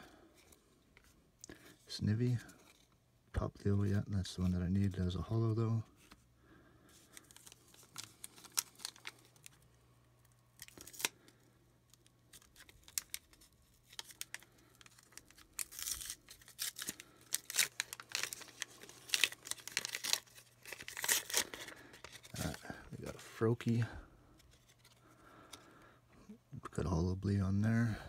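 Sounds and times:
wrappers torn and crinkled: 7.1s - 9.6s, 10.2s - 23.1s.

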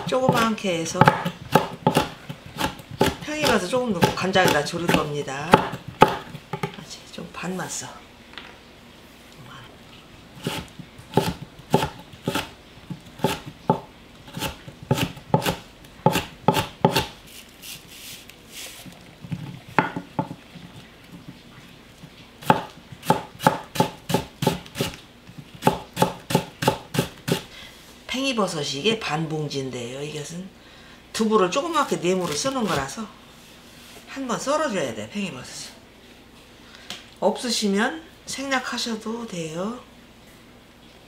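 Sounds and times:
knife chopping on wooden board: 0.0s - 6.8s, 10.4s - 17.1s, 19.7s - 20.4s, 22.4s - 27.4s.

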